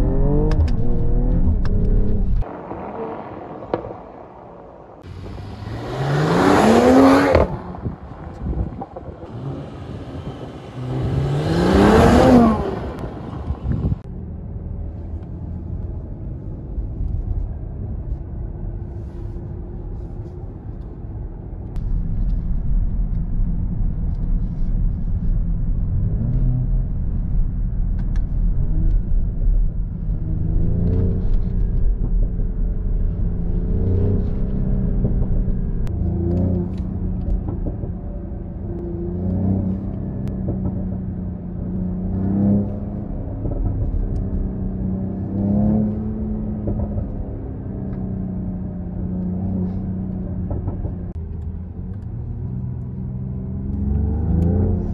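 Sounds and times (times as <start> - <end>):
engine rumble accelerating through gears: 0.0 - 3.8, 5.0 - 54.9
car engine revving: 0.0 - 3.9, 5.0 - 14.1, 29.9 - 54.9.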